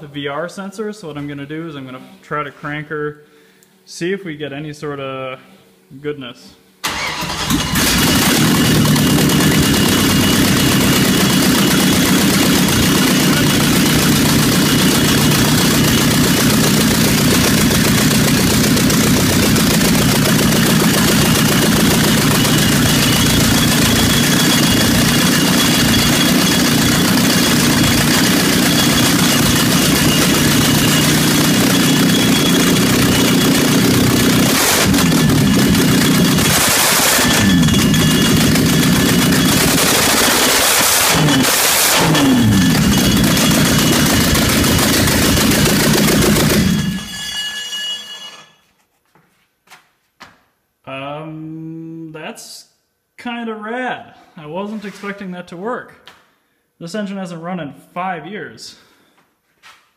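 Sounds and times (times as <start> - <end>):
engine cranking and running loudly: 6.8 - 47.6.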